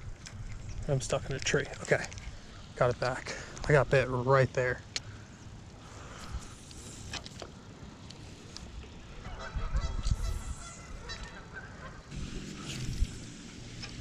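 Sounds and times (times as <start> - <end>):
goose honking: 9.2 - 12.1.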